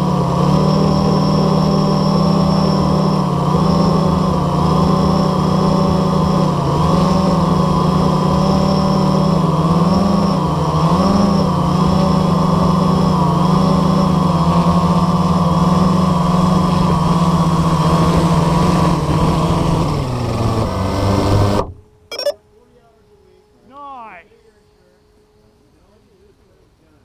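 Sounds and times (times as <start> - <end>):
quadcopter motors humming: 0.0 - 16.9.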